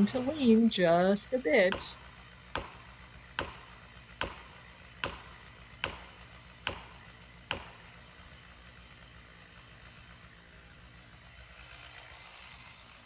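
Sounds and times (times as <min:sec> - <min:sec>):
hammer striking metal wedges: 0:01.7 - 0:01.9.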